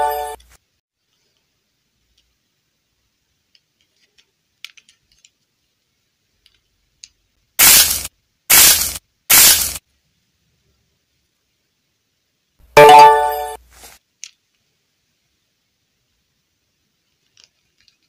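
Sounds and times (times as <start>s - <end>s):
plastic doll clicks and taps: 3.5s - 5.4s
loud hissing bursts: 7.6s - 9.8s.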